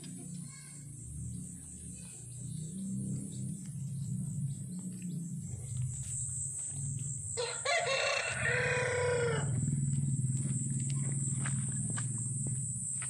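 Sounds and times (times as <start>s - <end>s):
steady low hum: 0.0s - 13.0s
thin high whine: 3.8s - 13.0s
rooster crowing: 7.3s - 9.8s.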